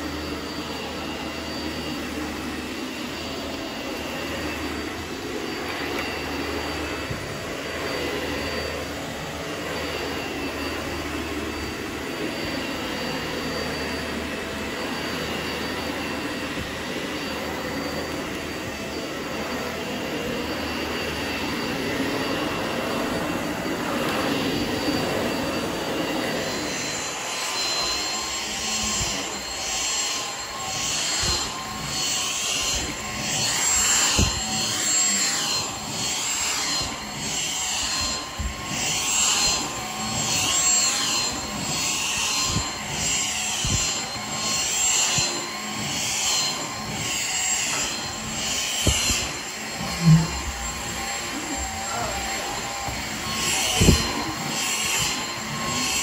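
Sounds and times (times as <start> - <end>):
vacuum cleaner running: 0.0 - 56.0.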